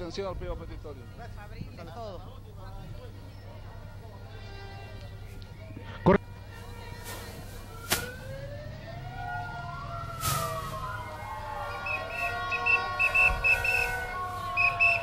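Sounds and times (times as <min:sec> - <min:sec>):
sirens wailing: 0:05.4 - 0:15.0
short whistle blasts: 0:11.9 - 0:14.0.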